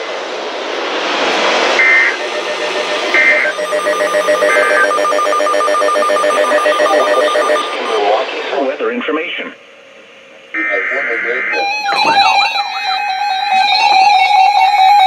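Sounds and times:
warbling two-tone data bursts: 0:01.8 - 0:08.4, 0:10.6 - 0:14.7
pulsed buzzy alarm tone: 0:01.8 - 0:08.5, 0:10.6 - 0:15.0
radio static: 0:01.8 - 0:09.6, 0:10.6 - 0:14.1.

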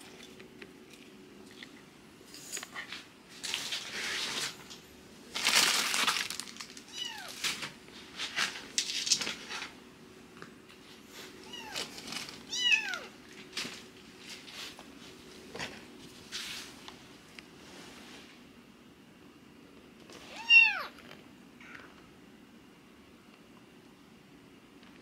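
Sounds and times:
rustling and scratching: 0:00.0 - 0:04.7, 0:05.3 - 0:09.8, 0:10.8 - 0:12.7, 0:13.3 - 0:17.0
kittens mewing: 0:20.3 - 0:21.0.

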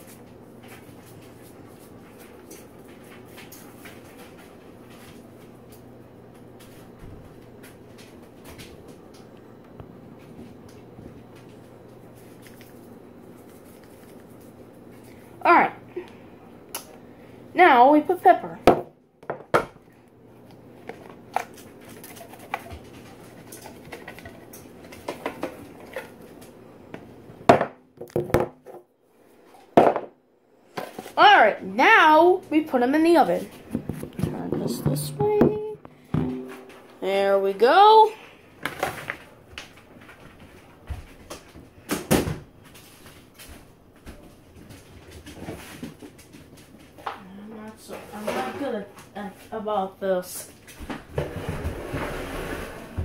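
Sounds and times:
steady low hum: 0:00.0 - 0:41.9
clicks and crinkles of foil pans: 0:20.9 - 0:26.5
knock: 0:35.1 - 0:36.8.

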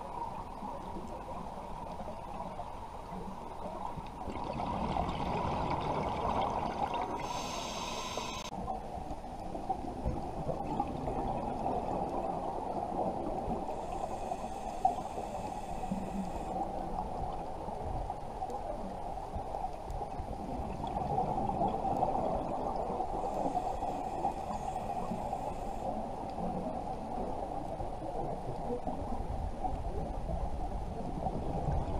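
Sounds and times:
muffled underwater noise: 0:00.0 - 0:31.9
hissing regulator breaths: 0:07.2 - 0:08.5, 0:13.7 - 0:16.5, 0:23.2 - 0:26.0.

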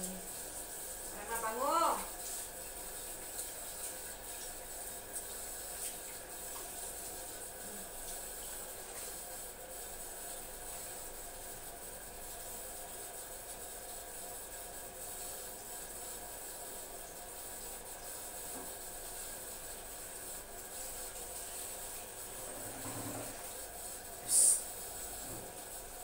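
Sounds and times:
tap water running into sink: 0:00.0 - 0:11.6, 0:17.0 - 0:26.0.

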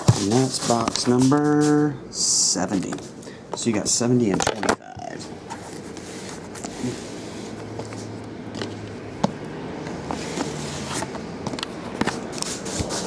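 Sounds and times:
boxes knocking and tapping: 0:00.0 - 0:01.2
cardboard boxes scraping: 0:00.0 - 0:01.8, 0:10.0 - 0:11.2, 0:12.0 - 0:13.0.

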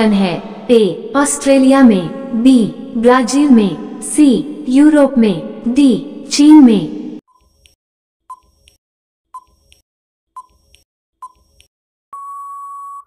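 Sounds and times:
long steady beep: 0:12.1 - 0:13.0.

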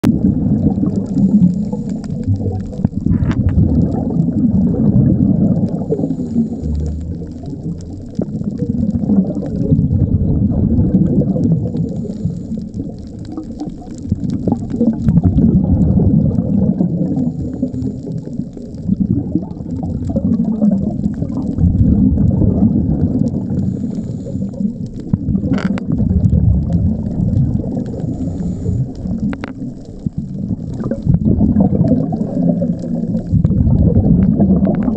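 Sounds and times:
exhaust bubbles rumbling underwater: 0:00.0 - 0:34.9
regulator inhalation hiss: 0:11.8 - 0:12.6, 0:23.5 - 0:24.7, 0:28.0 - 0:29.0.

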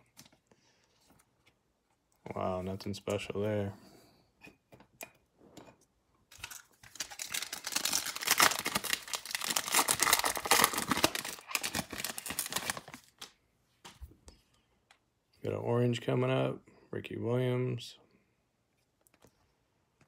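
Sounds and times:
wrapper tearing and crinkling: 0:06.3 - 0:13.3.

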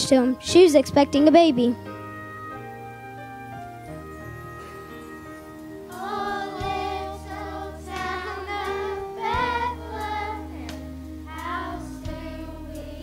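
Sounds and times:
instrumental accompaniment: 0:00.0 - 0:13.0
children's choir singing: 0:05.8 - 0:13.0.

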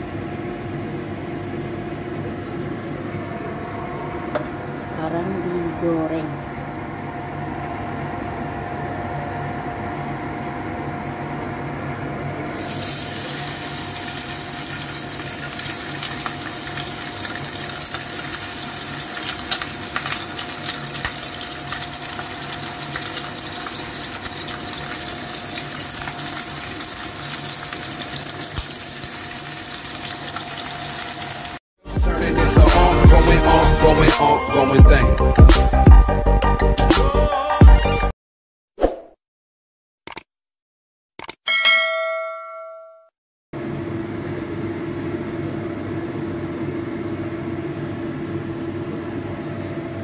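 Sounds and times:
food sizzling in hot oil: 0:12.5 - 0:31.6
oil pops and crackles: 0:19.1 - 0:22.3, 0:27.7 - 0:28.8.

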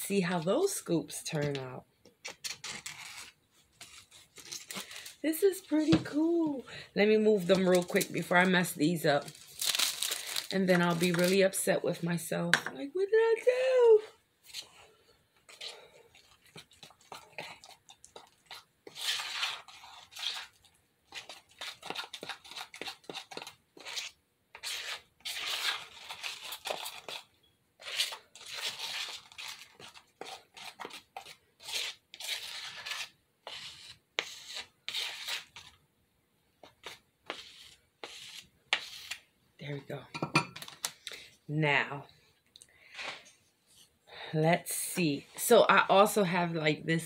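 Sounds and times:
utensil scraping spackle in plastic tub: 0:15.5 - 0:35.8, 0:36.6 - 0:39.2.

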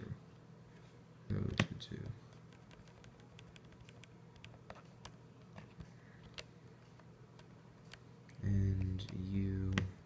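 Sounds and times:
calculator keys clicking: 0:02.5 - 0:04.8.

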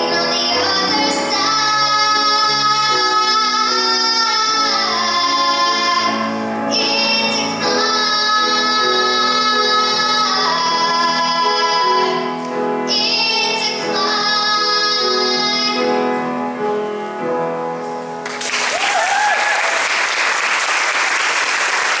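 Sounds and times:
girl singing into a microphone: 0:00.0 - 0:16.8
audience applauding: 0:18.2 - 0:22.0.

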